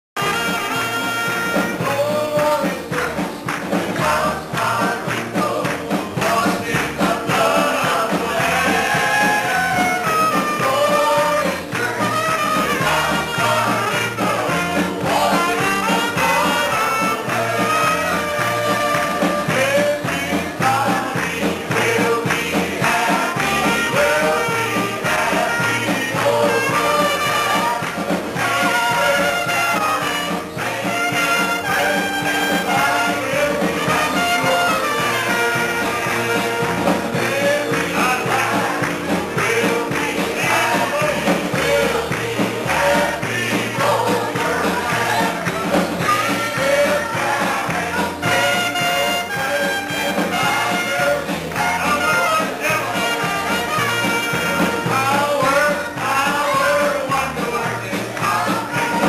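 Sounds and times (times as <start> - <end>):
instrumental accompaniment: 0.2 - 59.0
man singing gospel into microphone: 0.2 - 59.0
steady bass line: 0.2 - 59.0.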